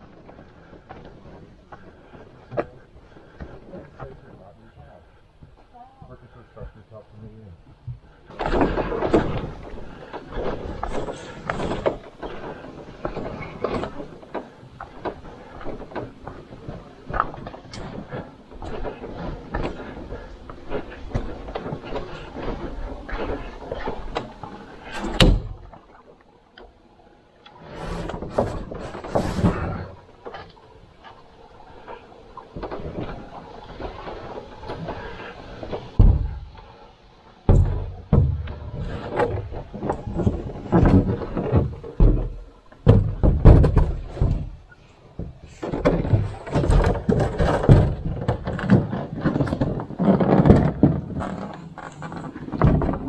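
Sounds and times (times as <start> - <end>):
hull scraping and rubbing on rock: 8.3 - 25.7, 27.5 - 53.0
canoe hull knocking against rock: 37.5 - 44.6.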